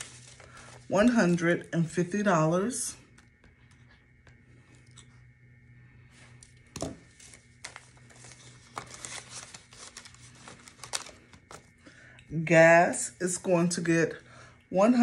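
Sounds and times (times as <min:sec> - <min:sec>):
paper rustling and crinkling: 0:00.0 - 0:01.7, 0:06.8 - 0:11.8.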